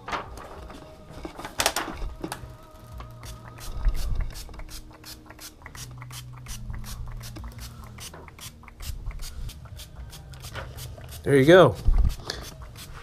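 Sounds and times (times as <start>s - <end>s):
spray bottle spritzing: 2.8s - 13.0s.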